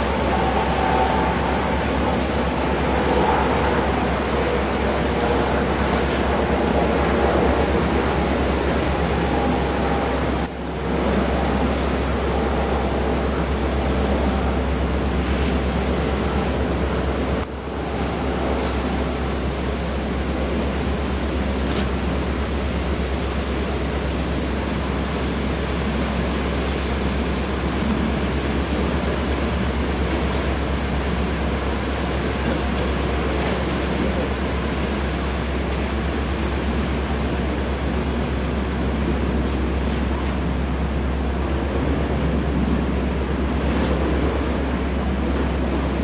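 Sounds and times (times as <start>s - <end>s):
wind on microphone: 0.0s - 22.2s
ferry waterjets churning wake: 0.0s - 46.0s.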